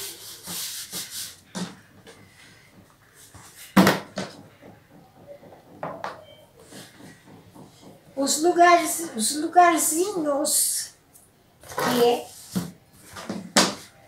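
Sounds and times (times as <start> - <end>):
fabric and cardboard rubbing: 0.0 - 5.8, 11.7 - 14.0.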